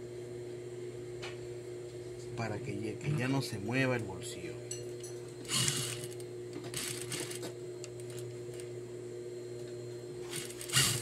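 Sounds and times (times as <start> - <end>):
sewing machine motor hum: 5.4 - 8.9, 9.6 - 11.0
sewing machine stitching: 5.5 - 6.1, 6.7 - 7.4, 10.3 - 11.0.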